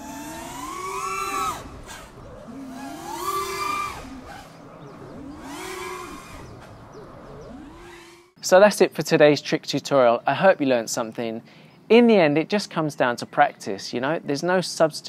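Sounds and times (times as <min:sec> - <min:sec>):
drone motors whining: 0:00.0 - 0:08.4.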